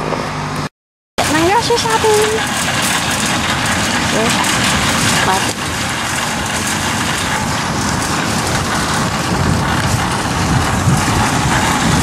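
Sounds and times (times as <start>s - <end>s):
shopping cart wheels rattling: 1.2s - 12.0s
wind buffeting microphone: 1.2s - 12.0s.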